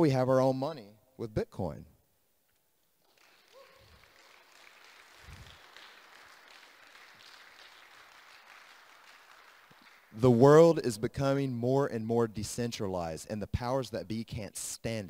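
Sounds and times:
audience applauding: 3.0s - 10.2s.

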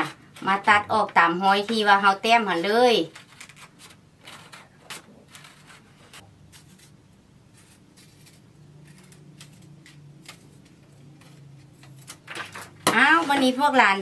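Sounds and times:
scissors snipping paper: 3.1s - 13.5s.

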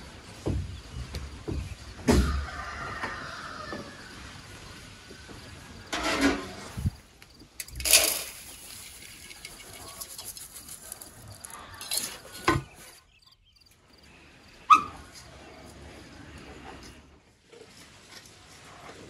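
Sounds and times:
dry grain pouring into a basin: 7.6s - 11.6s.

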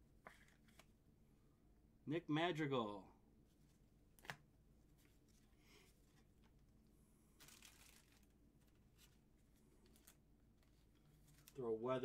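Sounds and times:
low room hum: 0.0s - 12.0s
rustle of cards and packaging: 7.3s - 12.0s.

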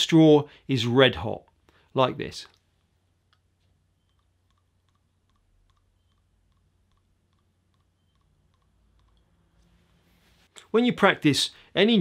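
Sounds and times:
faint evenly spaced clicks: 1.4s - 10.8s.

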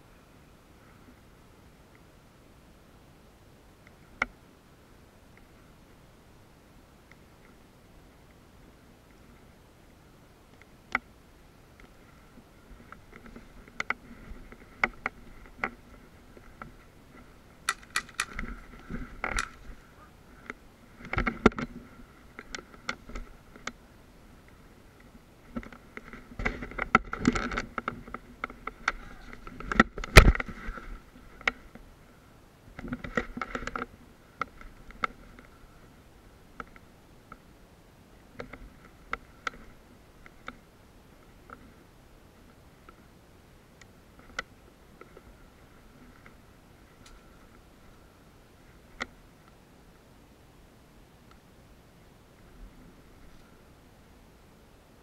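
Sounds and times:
clicks knocks and scrapes of gear: 17.7s - 19.7s.

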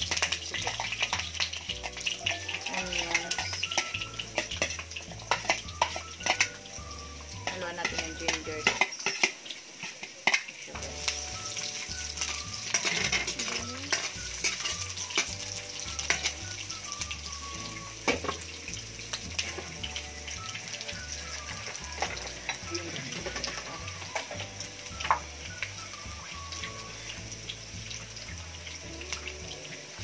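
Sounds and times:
metal spoon scraping a pan: 0.0s - 17.4s, 21.3s - 25.2s
garlic and onion sizzling in oil: 0.0s - 30.0s.

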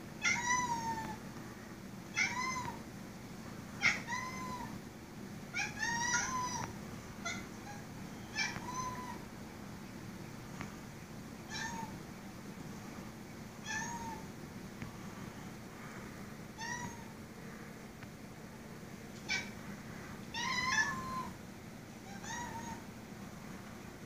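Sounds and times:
cat meowing: 0.2s - 1.2s, 2.1s - 2.8s, 3.8s - 4.7s, 5.6s - 9.2s, 11.5s - 12.0s, 13.6s - 14.3s, 16.6s - 17.1s, 19.2s - 19.5s, 20.3s - 21.4s, 22.0s - 22.8s.

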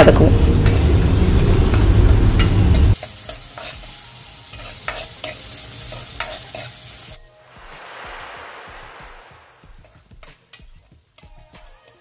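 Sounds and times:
onions sizzling in pan: 0.0s - 7.8s
loud low rumble: 7.5s - 9.9s.

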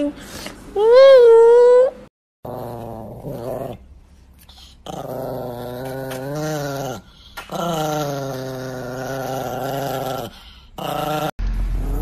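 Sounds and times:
small dog growling: 2.4s - 3.8s, 4.6s - 12.0s.

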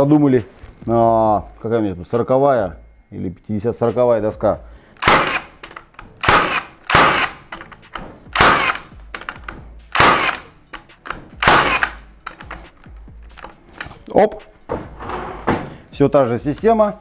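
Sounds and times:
nail gun firing: 5.0s - 12.7s.

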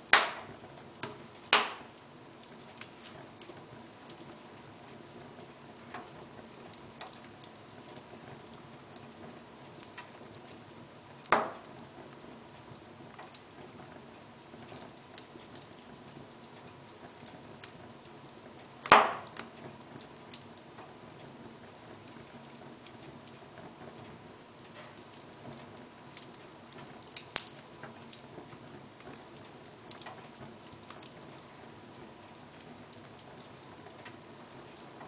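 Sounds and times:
wood fire crackling: 0.0s - 35.0s
sharp loud pops of fire: 0.1s - 2.0s, 11.3s - 11.8s, 18.8s - 19.6s.

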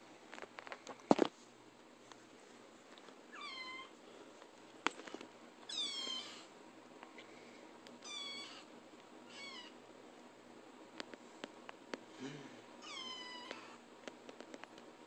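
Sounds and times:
kitten meowing: 5.7s - 6.4s, 8.0s - 8.7s, 9.3s - 9.8s.

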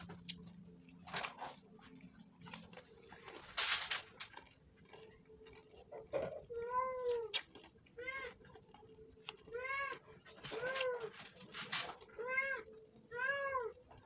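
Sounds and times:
cat meowing: 12.1s - 13.8s.

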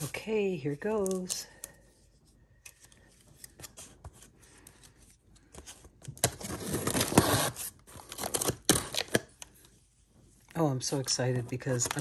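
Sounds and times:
packing tape slit open: 6.1s - 9.4s.

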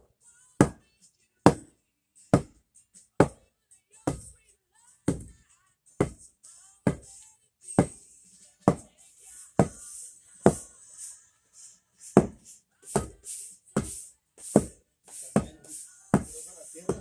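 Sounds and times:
tamper pounding sand: 12.0s - 17.0s.

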